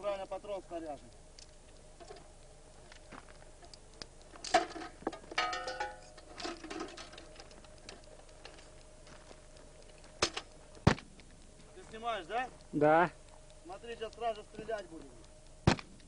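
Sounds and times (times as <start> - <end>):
faint steady hum: 0.0 - 16.0
struck metal ringing: 4.5 - 7.0.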